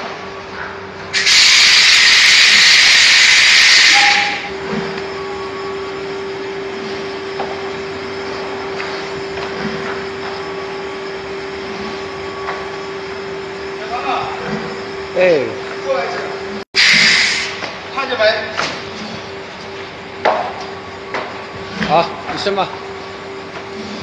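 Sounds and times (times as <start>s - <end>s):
machine humming: 0.0s - 24.0s
loud hiss of air: 1.1s - 4.5s, 16.8s - 17.6s.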